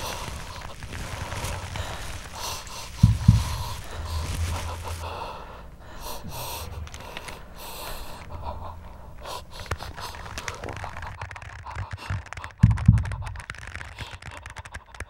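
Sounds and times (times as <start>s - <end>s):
low steady hum: 0.0s - 13.5s
person gasping breaths: 0.0s - 15.0s.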